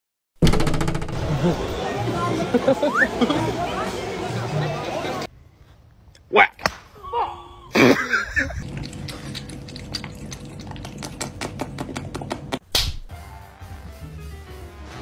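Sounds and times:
cat lapping water: 0:08.6 - 0:12.3.

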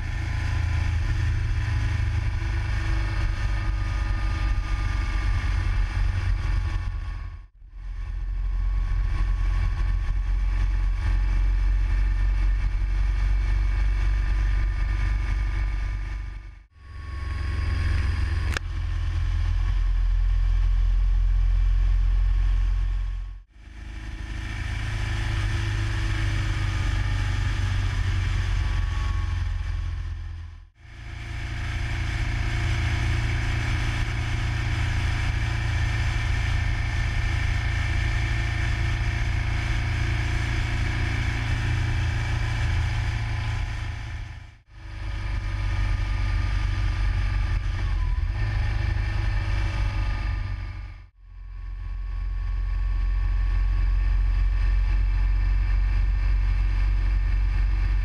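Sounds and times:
motorcycle engine running: 0:00.0 - 0:58.0
wind rumble on microphone: 0:00.0 - 0:58.0.

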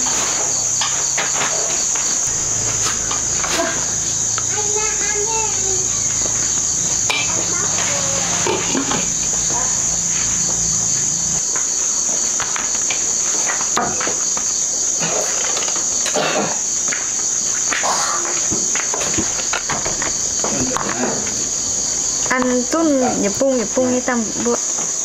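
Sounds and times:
low hum: 0:00.0 - 0:13.6
crickets chirring: 0:00.0 - 0:25.0.

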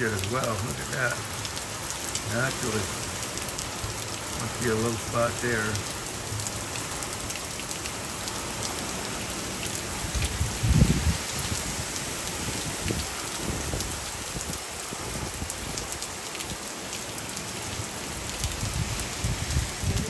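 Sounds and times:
steady rain falling: 0:00.0 - 0:20.0
wind gusts buffeting microphone: 0:09.9 - 0:16.0, 0:18.4 - 0:20.0.

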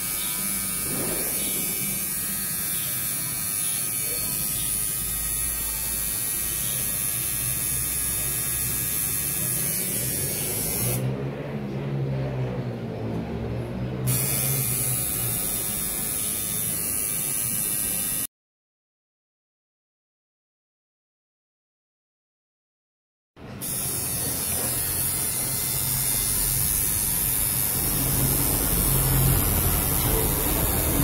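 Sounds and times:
tattoo machine buzzing: 0:00.0 - 0:11.1, 0:14.1 - 0:18.3, 0:23.6 - 0:31.0.

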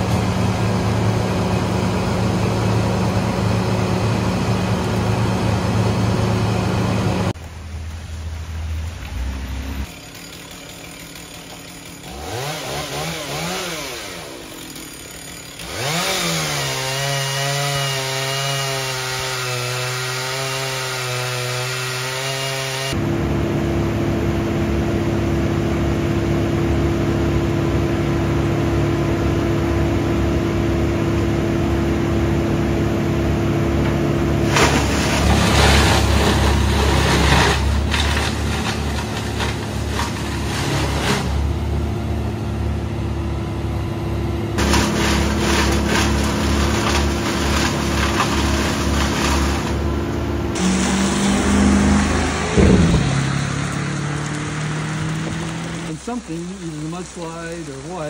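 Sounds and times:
chipper engine whining: 0:00.0 - 0:58.0
chipper grinding branches: 0:00.0 - 0:58.0
chainsaw revving: 0:09.8 - 0:23.0, 0:34.4 - 0:41.6, 0:44.6 - 0:58.0.

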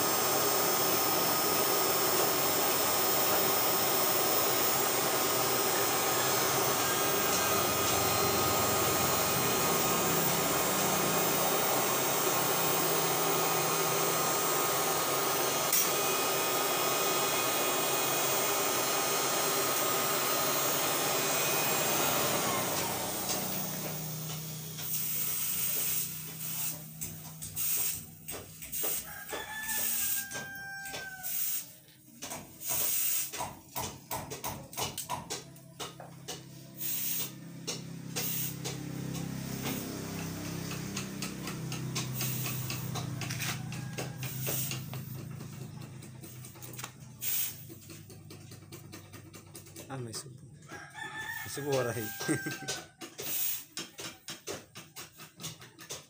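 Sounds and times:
hot steel sizzling in water: 0:00.0 - 0:26.8, 0:36.8 - 0:37.4, 0:47.2 - 0:47.7, 0:52.1 - 0:53.7
forge air blower running: 0:00.0 - 0:50.2, 0:51.3 - 0:53.6.

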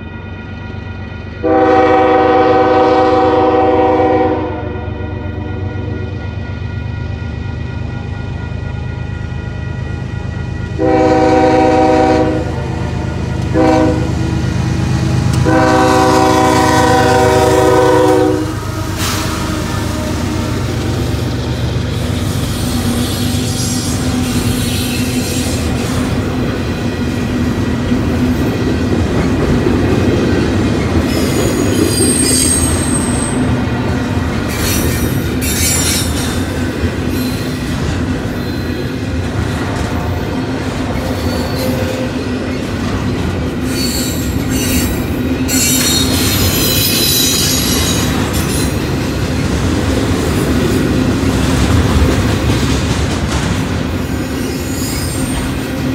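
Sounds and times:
freight train rumbling past: 0:00.0 - 0:55.9
high-pitched wheel squeal: 0:31.1 - 0:33.5, 0:34.5 - 0:36.4, 0:43.7 - 0:48.8, 0:54.1 - 0:55.6.

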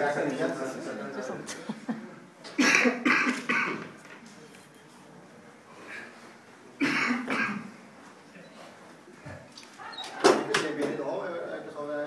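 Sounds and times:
person coughing: 0:02.6 - 0:03.9, 0:06.8 - 0:07.7.

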